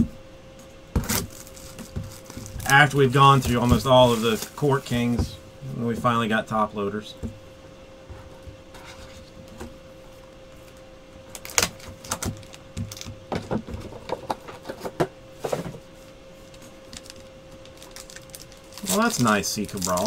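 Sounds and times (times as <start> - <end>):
faint steady hum: 0.0 - 20.0
foil packs rustling and clicking: 1.0 - 5.4, 11.3 - 15.6, 16.4 - 20.0.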